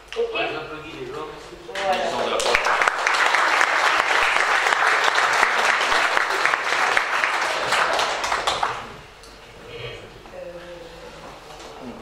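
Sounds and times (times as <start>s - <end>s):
people applauding: 1.8s - 9.0s.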